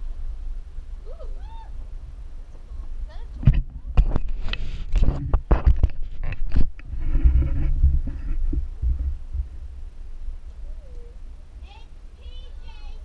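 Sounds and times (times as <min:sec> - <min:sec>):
low rubbing on microphone: 0:02.6 - 0:10.0
camera handling knocks and scrapes: 0:03.5 - 0:08.5.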